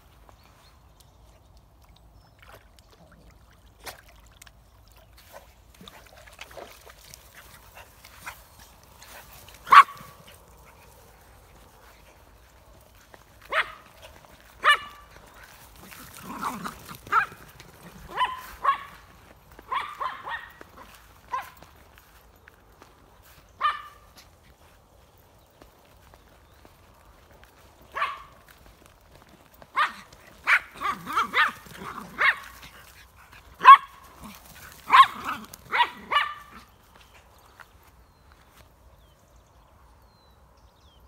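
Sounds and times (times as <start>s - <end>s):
small dogs yapping: 14.6s - 21.6s, 29.7s - 32.9s, 33.6s - 36.7s.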